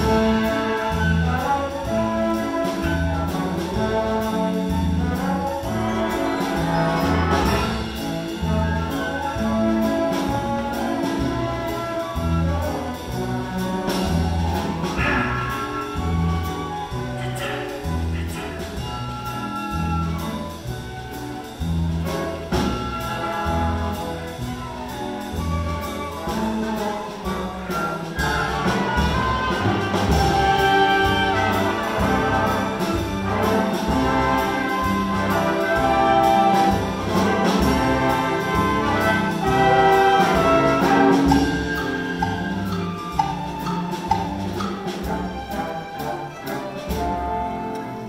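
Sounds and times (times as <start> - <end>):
orchestra playing dance music: 0.0 - 48.0.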